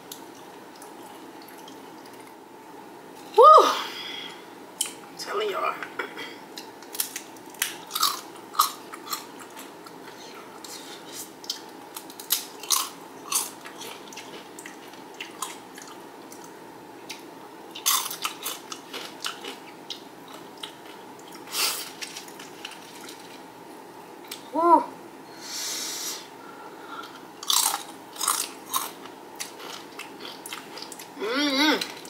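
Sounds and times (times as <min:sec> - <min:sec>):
tortilla chips crunching: 0:06.8 - 0:09.6, 0:17.7 - 0:23.4, 0:27.4 - 0:31.1.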